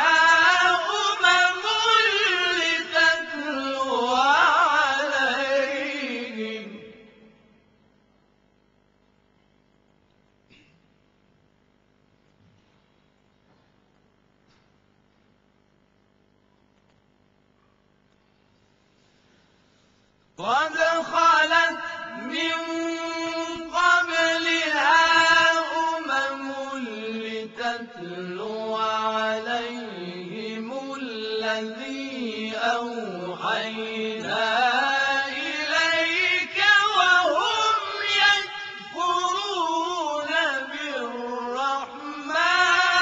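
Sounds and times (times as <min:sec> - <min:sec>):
men chanting in chorus: 0:00.0 - 0:07.3, 0:20.4 - 0:43.0.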